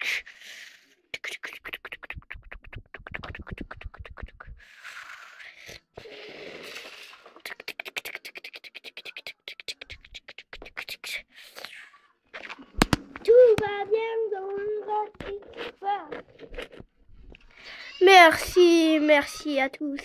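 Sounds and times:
breathy rushing mouth noises: 0:00.0 - 0:11.9
mouth clicking sounds: 0:00.0 - 0:13.7.

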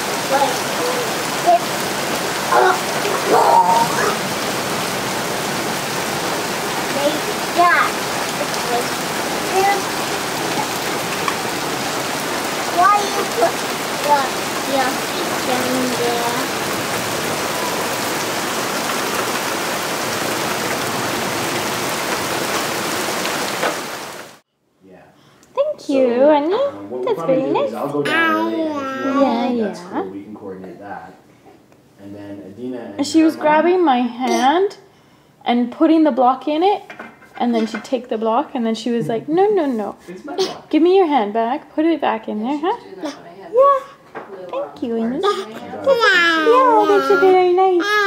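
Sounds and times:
hail and rain falling: 0:00.0 - 0:24.4, 0:45.7 - 0:47.3.

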